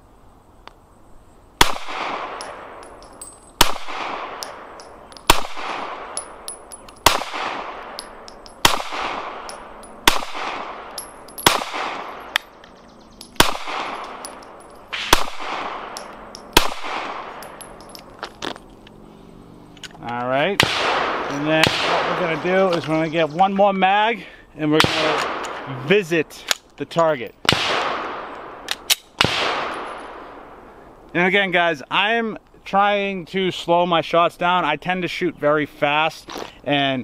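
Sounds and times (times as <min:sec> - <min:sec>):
pistol shots with echo: 0:01.6 - 0:12.6, 0:13.2 - 0:18.0, 0:20.6 - 0:22.8, 0:24.8 - 0:25.7, 0:27.4 - 0:30.6.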